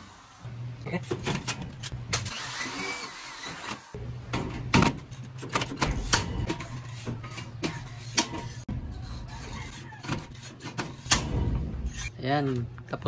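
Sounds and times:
electric drill motor: 2.2 - 4.0.

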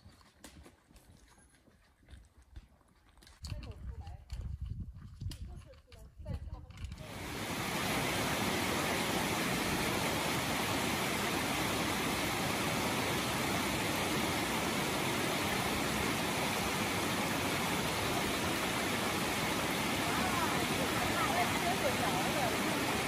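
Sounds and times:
creek flowing over rocks: 7.0 - 23.0.

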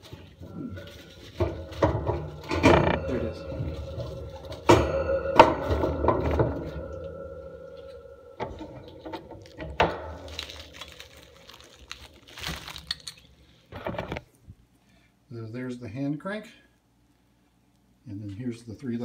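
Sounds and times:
plastic wrap crinkling: 0.0 - 4.6, 9.0 - 14.3
metal drum ringing: 0.0 - 11.9.

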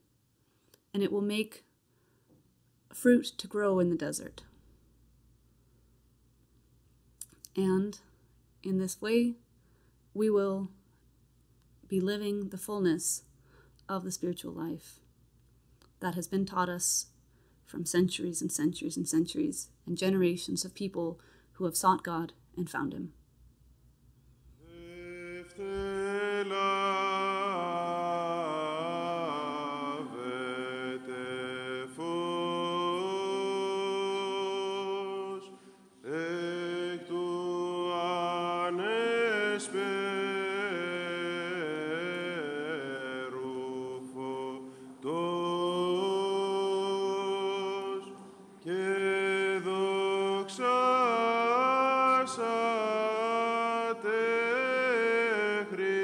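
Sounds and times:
held vocal drone: 24.6 - 56.0.

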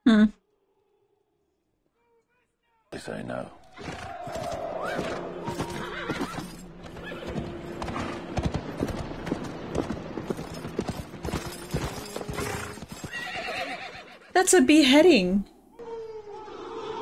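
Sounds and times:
horse hooves clopping: 3.9 - 14.2.

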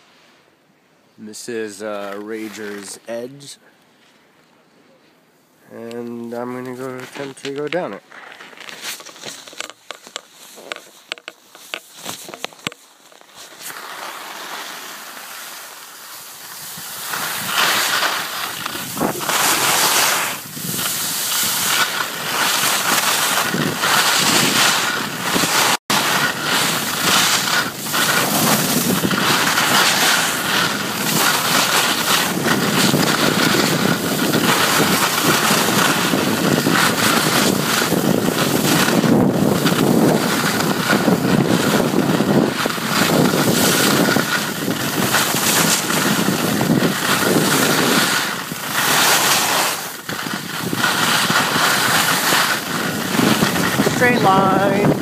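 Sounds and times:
skis scraping over snow: 1.3 - 4.1, 5.7 - 55.0
faint crunches: 5.8 - 55.0
wind rushing over microphone: 16.4 - 55.0.

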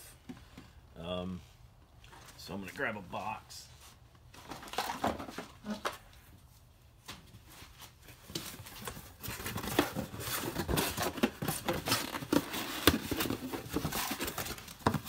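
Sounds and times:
cardboard rustling and scraping: 6.6 - 15.0.

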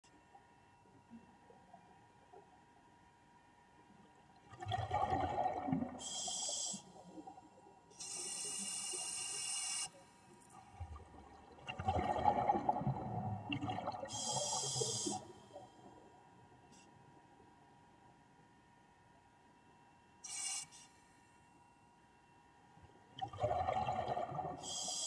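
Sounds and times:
exhaled bubbles gurgling: 4.4 - 6.4, 10.7 - 15.6, 23.2 - 24.8
regulator inhale hiss: 6.0 - 7.1, 7.9 - 10.0, 14.1 - 15.6, 24.6 - 25.0.

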